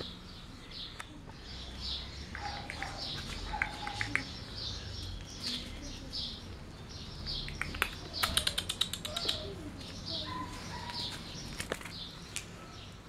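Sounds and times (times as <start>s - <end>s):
small birds chirping: 0.0s - 13.0s
sharp clicks: 2.3s - 4.4s, 7.5s - 9.5s.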